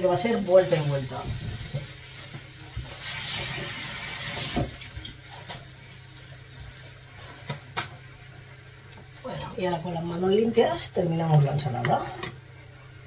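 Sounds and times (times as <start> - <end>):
kitchen tap running: 0.0 - 13.0
low steady hum: 4.4 - 13.0.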